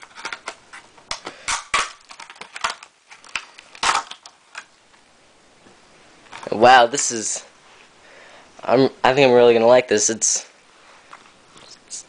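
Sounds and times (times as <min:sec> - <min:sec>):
plastic packaging crinkling: 0:00.0 - 0:04.8.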